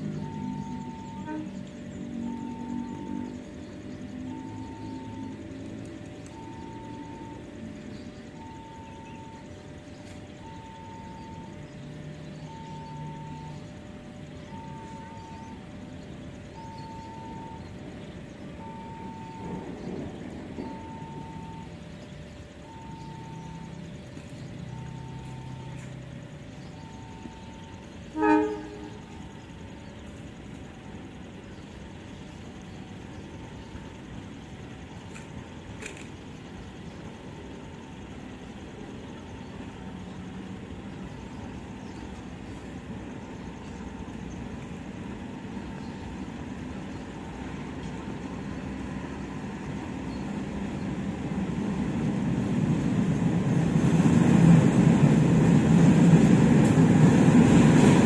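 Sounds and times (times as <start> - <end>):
locomotive engine rumble: 0.0 - 58.0
train horn toot: 0.3 - 3.3, 27.3 - 29.4.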